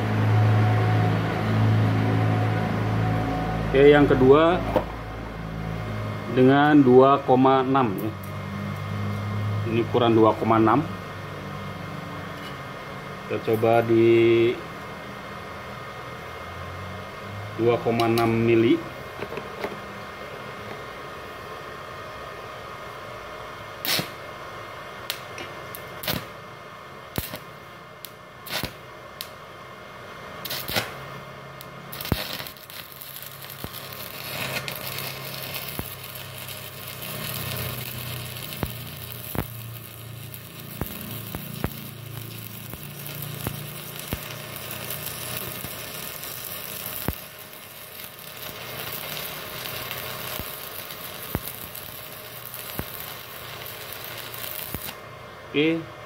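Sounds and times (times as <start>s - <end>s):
welding arc crackling: 23.8s - 24.4s, 25.0s - 29.4s, 30.3s - 55.6s.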